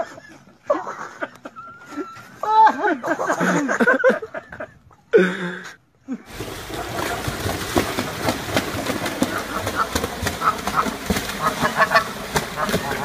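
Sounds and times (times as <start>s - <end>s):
swan splashing across water: 6.3s - 13.0s
people's voices: 12.6s - 13.0s.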